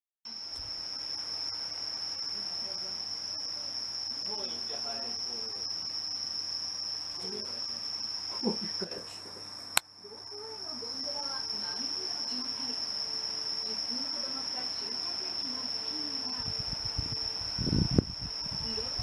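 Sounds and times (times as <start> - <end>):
high-pitched continuous tone: 6.8 - 19.0.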